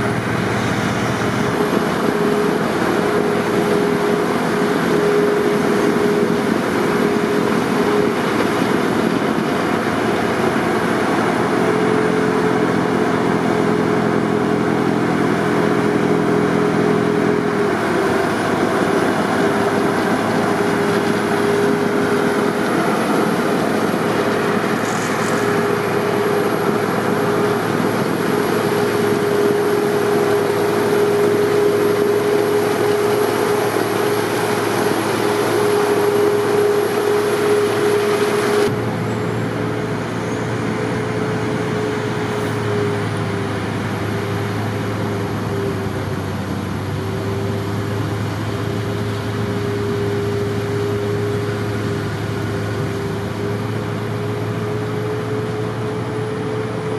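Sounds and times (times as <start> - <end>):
low droning engine note: 0.0 - 56.9
snowblower engine rushing: 0.0 - 56.9
steady whine: 0.0 - 56.9.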